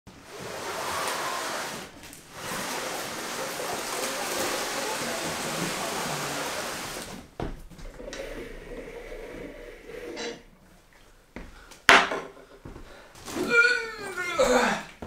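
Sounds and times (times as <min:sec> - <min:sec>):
steady rushing hiss: 0:00.1 - 0:11.5.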